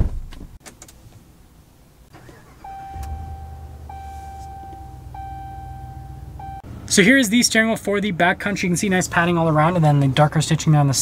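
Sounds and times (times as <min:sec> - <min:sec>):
truck engine idling: 0:02.1 - 0:09.7
dashboard warning chime: 0:02.2 - 0:06.7.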